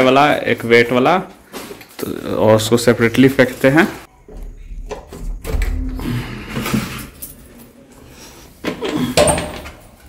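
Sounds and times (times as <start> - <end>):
wooden door pulled open: 4.3 - 7.6.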